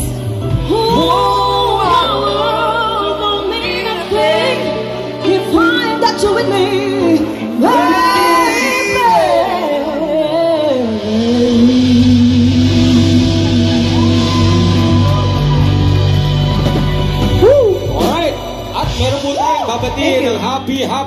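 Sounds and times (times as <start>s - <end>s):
woman singing: 0.0s - 15.4s
electric guitar: 0.0s - 20.3s
bass: 0.0s - 21.0s
drums: 0.0s - 21.0s
man singing: 6.2s - 15.4s.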